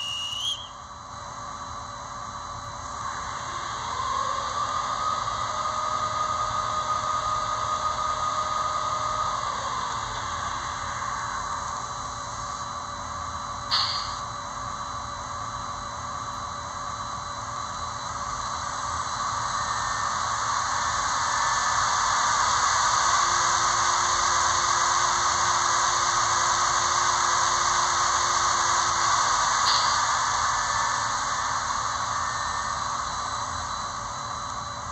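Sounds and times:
brief click: 13.7 - 14.2, 29.7 - 30.1.

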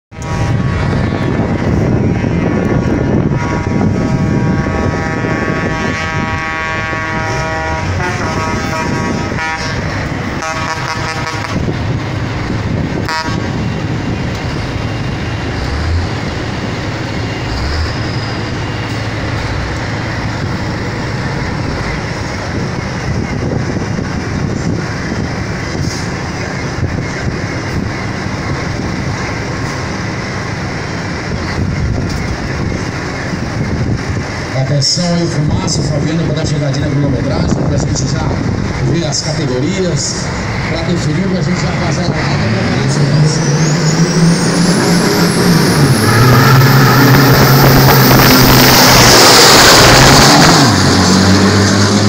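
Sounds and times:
truck air horn blasts: 0.1 - 1.0, 3.2 - 11.8, 13.0 - 13.6, 45.9 - 50.5
truck engines rumbling: 0.1 - 52.0.

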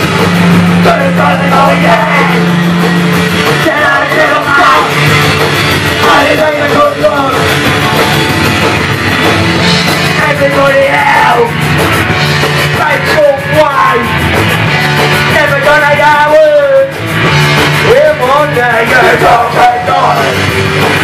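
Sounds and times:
drums: 0.0 - 21.0
rock band playing: 0.0 - 21.0
lead singer singing: 0.8 - 2.8, 3.4 - 5.1, 6.0 - 7.5, 15.3 - 16.9, 17.8 - 20.4.

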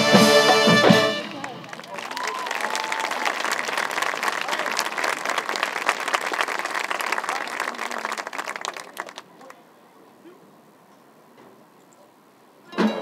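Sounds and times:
crowd voices: 0.0 - 10.8
crowd applauding: 1.2 - 9.6.

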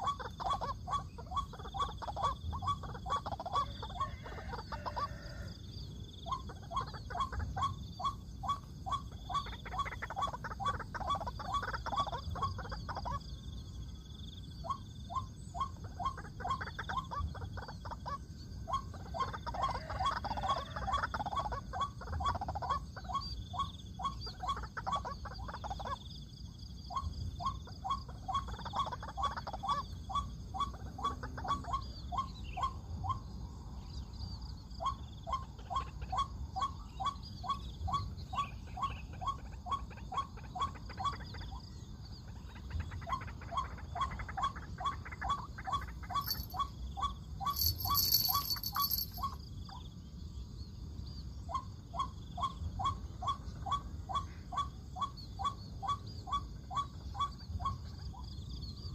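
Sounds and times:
waterhen calling: 0.0 - 5.5, 43.2 - 46.7, 47.4 - 49.3.

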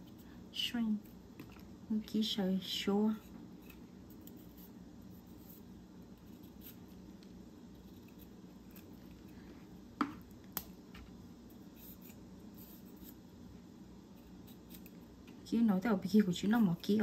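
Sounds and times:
knife cutting broccoli: 3.2 - 7.0, 7.7 - 9.3.

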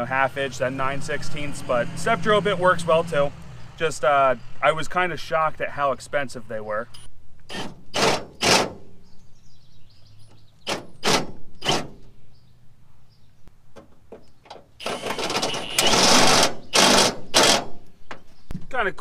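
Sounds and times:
cordless drill cutting sheet steel: 14.8 - 17.7.

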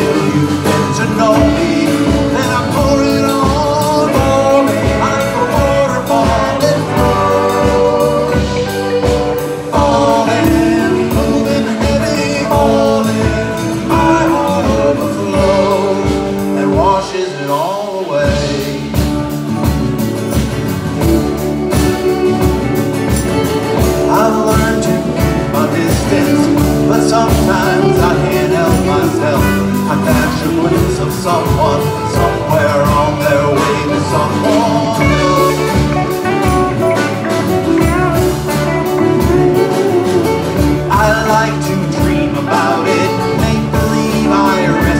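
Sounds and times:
congas: 0.0 - 44.9
folk-rock band playing: 0.0 - 44.9.

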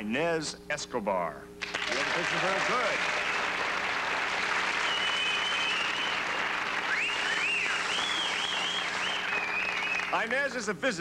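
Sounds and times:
audience applauding: 1.6 - 10.7
high whistles: 4.6 - 10.2.

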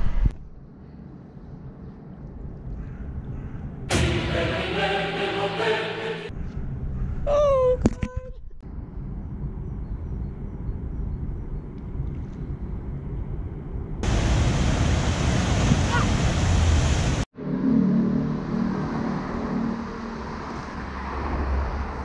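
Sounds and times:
water rushing: 14.0 - 17.3.

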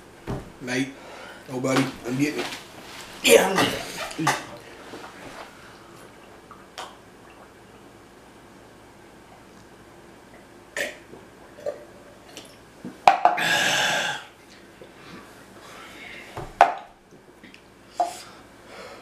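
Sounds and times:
man exhaling loudly: 13.4 - 14.3.

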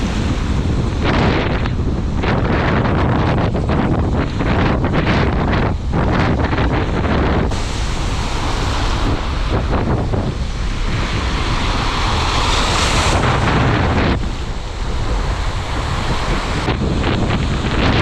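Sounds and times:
hissing rush: 0.0 - 18.0
surf breaking on beach: 0.0 - 18.0
wind buffeting microphone: 0.0 - 18.0.

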